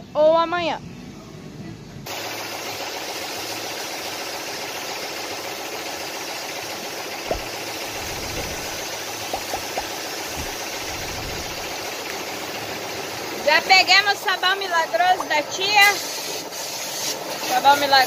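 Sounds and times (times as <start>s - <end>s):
machine running: 2.1s - 13.8s
pressure washer spraying water: 2.1s - 14.6s, 15.6s - 18.0s
light knocks: 7.3s - 11.3s.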